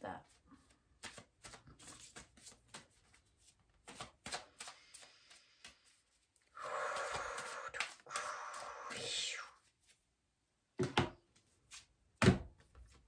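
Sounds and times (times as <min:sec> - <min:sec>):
cards shuffling: 0:00.2 - 0:08.9
cards tapping and sliding: 0:01.0 - 0:06.0, 0:06.8 - 0:08.9.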